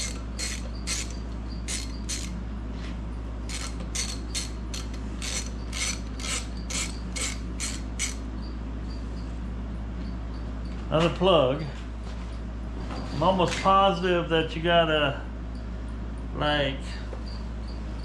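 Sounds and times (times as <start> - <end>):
ratchet wrench clicking: 0.0 - 2.4, 3.5 - 8.2.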